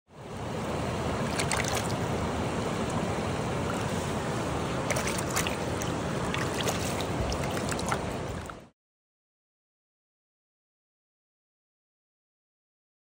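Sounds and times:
stream water rushing: 0.1 - 8.7
hand splashing water in net: 1.2 - 2.0, 4.9 - 8.5.

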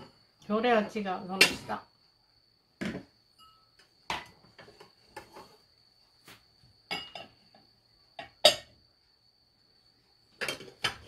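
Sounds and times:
dishes clinking and knocking: 2.8 - 5.4, 6.9 - 7.6, 8.2 - 8.8, 10.4 - 11.0
faint high-pitched tone: 3.3 - 3.8.

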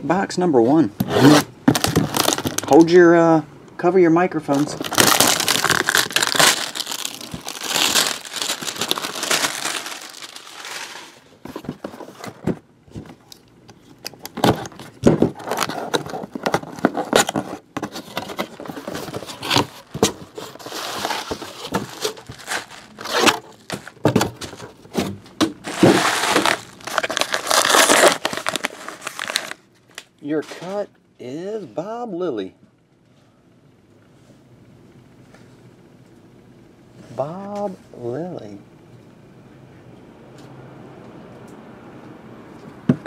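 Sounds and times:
plastic wrap tearing and crinkling: 1.2 - 2.8, 4.5 - 11.3, 15.4 - 17.6, 18.3 - 24.6, 25.6 - 30.8.

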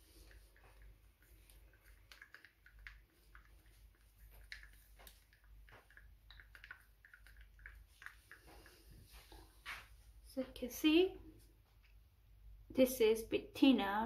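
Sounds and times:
stir stick clicking in paint cup: 0.2 - 8.8.

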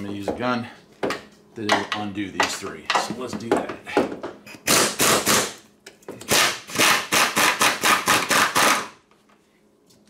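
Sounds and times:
air impact wrench hammering: 4.5 - 5.6, 6.2 - 9.0.

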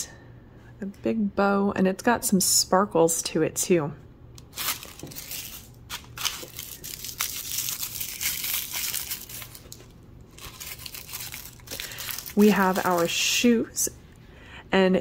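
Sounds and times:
wrapping crinkling and tearing: 4.4 - 13.3.

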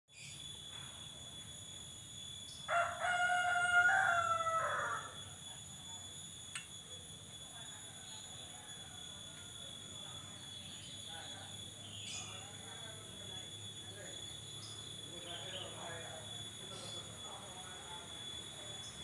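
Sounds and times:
rooster crowing: 2.6 - 5.5.

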